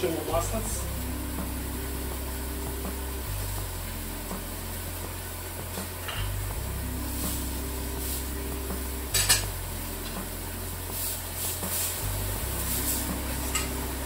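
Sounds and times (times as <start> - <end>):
steady low hum: 0.0 - 14.0
metal utensils clinking on pan: 9.1 - 9.5, 13.4 - 13.8.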